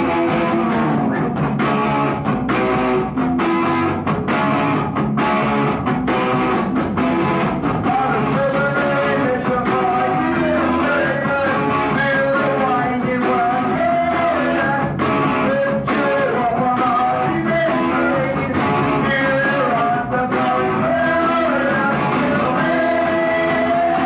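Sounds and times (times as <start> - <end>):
punk rock band playing: 0.0 - 24.0
man singing: 7.8 - 24.0.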